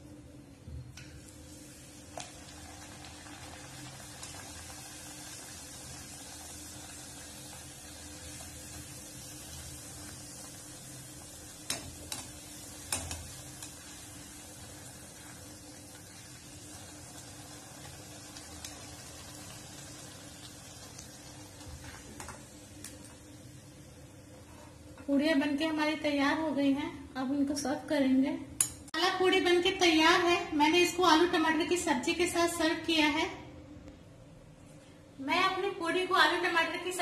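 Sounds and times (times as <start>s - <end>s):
food sizzling in hot oil: 1.2s - 24.3s.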